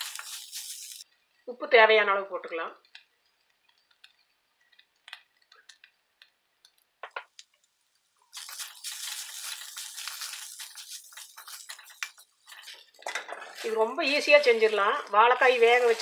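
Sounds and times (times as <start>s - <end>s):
salt ticking into pan: 0.0s - 1.4s, 2.8s - 13.0s
spatula scraping metal pan: 13.3s - 16.0s.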